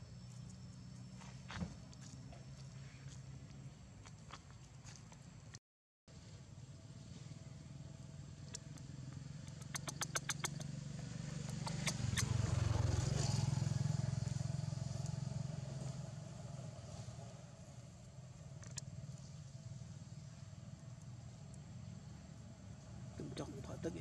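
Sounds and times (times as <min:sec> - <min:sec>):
vehicle engine passing by: 0:06.2 - 0:24.0
sharp clicks: 0:08.5 - 0:10.7, 0:11.5 - 0:12.3.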